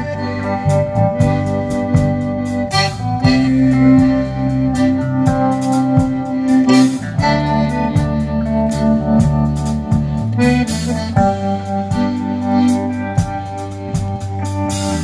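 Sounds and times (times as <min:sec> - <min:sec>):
bass guitar: 0:00.0 - 0:15.0
button accordion chords: 0:00.0 - 0:15.0
electric guitar: 0:00.0 - 0:15.0
steady drum beat: 0:00.0 - 0:15.0.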